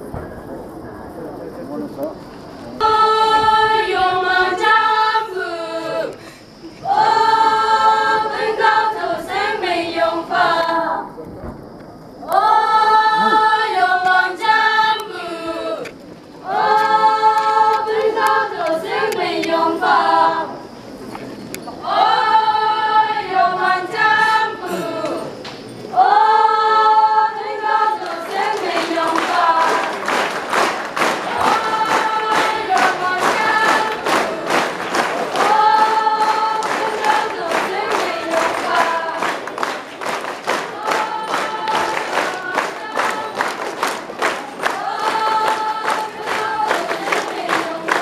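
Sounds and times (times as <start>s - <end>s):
choir singing slow song: 2.4s - 11.4s, 12.0s - 48.0s.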